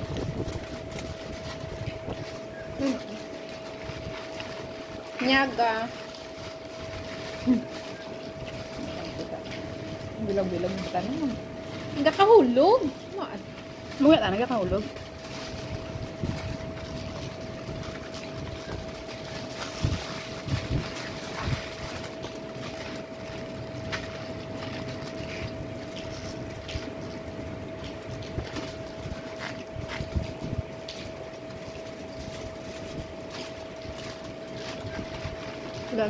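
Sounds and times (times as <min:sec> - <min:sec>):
steady machine hum: 0:00.0 - 0:36.0.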